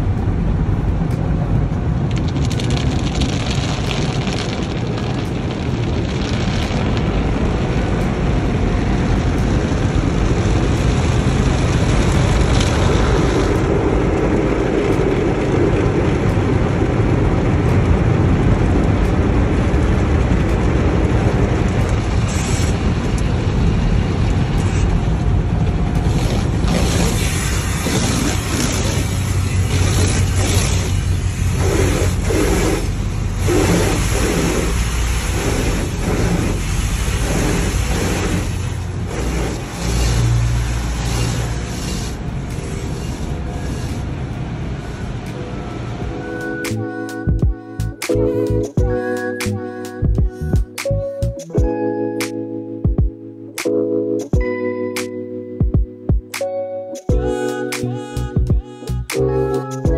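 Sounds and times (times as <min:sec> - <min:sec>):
car wash machinery rumble: 0:00.0 - 0:46.6
water pouring over car: 0:01.8 - 0:43.4
water spray hissing: 0:26.1 - 0:44.1.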